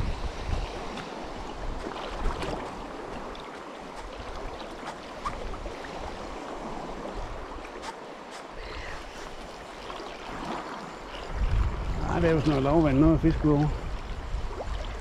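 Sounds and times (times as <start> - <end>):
sea water sloshing around legs: 0.6 - 13.0.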